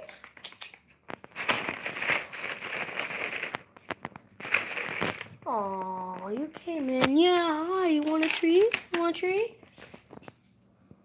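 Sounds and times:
plastic bag crinkling: 0:01.1 - 0:10.2.

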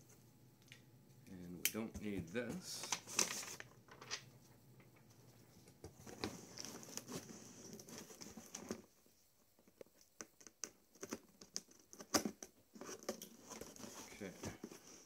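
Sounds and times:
packing paper rustling and crinkling: 0:02.6 - 0:04.2, 0:06.0 - 0:08.9.

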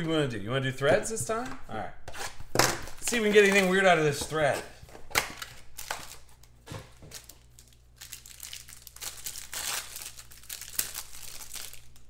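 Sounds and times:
foil wrapper crinkling and tearing: 0:05.2 - 0:12.0.

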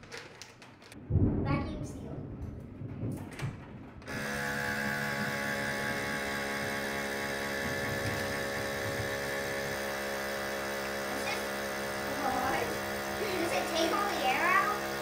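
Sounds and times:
pump motor humming: 0:04.1 - 0:15.0.

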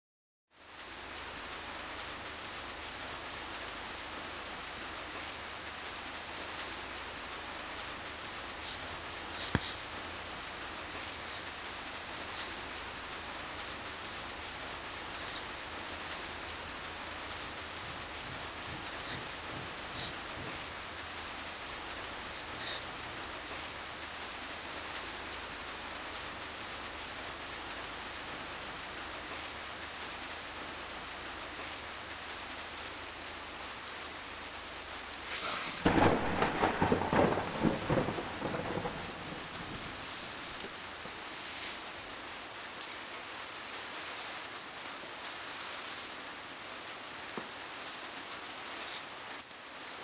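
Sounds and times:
steady rain falling: 0:00.5 - 0:50.0
thunder rumbling: 0:08.0 - 0:24.1, 0:35.8 - 0:40.7.

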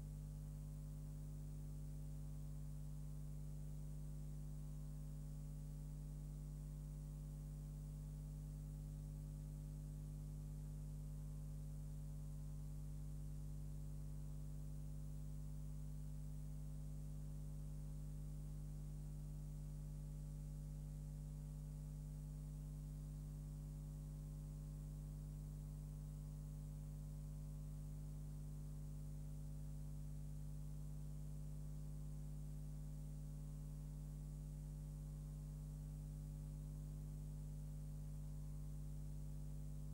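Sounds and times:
mains hum: 0:00.0 - 0:39.9.

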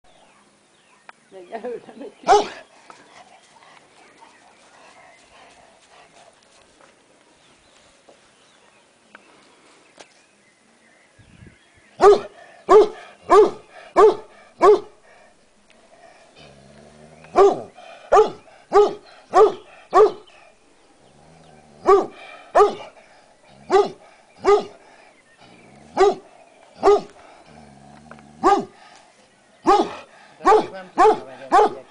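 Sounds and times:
garden ambience: 0:00.0 - 0:31.9
dog barking: 0:02.2 - 0:02.6, 0:12.0 - 0:15.0, 0:17.4 - 0:20.3, 0:21.8 - 0:22.9, 0:23.7 - 0:24.8, 0:26.0 - 0:26.2, 0:26.8 - 0:27.1, 0:28.4 - 0:28.7, 0:29.6 - 0:31.9
dog growling: 0:15.9 - 0:28.8.

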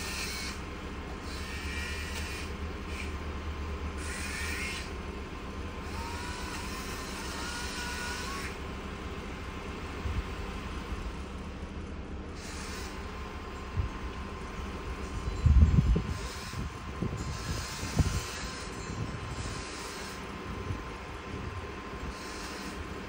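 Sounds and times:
whining hissing bursts: 0:00.0 - 0:03.4, 0:04.0 - 0:08.7, 0:12.4 - 0:13.4, 0:15.3 - 0:20.8, 0:21.4 - 0:23.0
truck machinery low rumble: 0:00.0 - 0:23.0.

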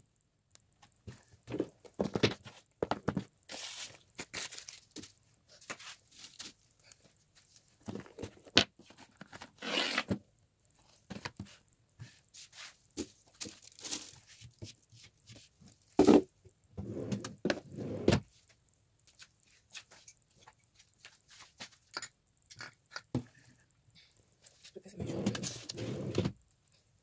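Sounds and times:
rustling: 0:00.9 - 0:16.0.

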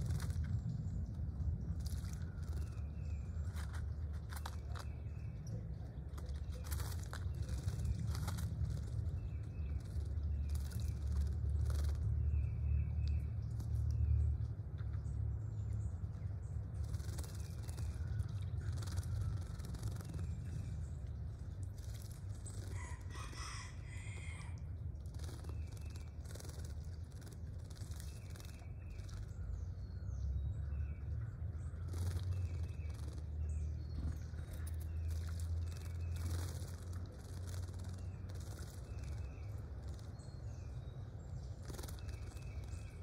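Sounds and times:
steady low hum: 0:00.0 - 0:43.0
birds splashing in water: 0:16.7 - 0:29.4.

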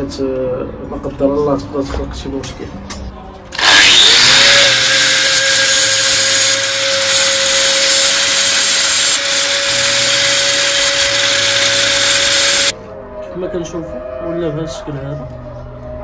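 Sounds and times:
angle grinder whining: 0:03.5 - 0:12.7
disc grinding metal rod: 0:03.6 - 0:12.7.

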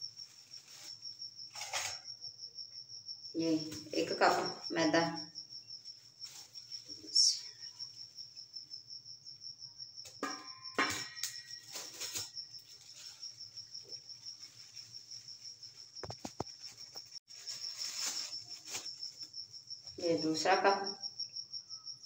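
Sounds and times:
cricket trilling: 0:00.0 - 0:22.0
plastic bag crinkling: 0:11.5 - 0:13.7, 0:14.3 - 0:19.0.

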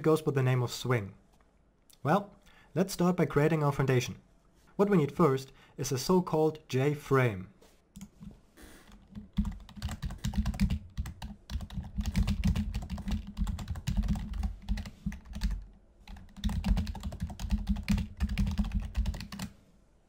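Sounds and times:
rapid typing on keyboard: 0:08.9 - 0:19.5.

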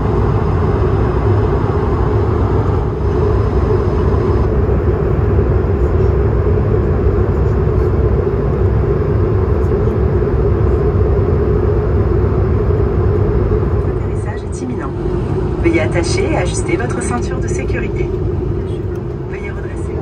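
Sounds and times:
airplane cabin engine rumble: 0:00.0 - 0:20.0.

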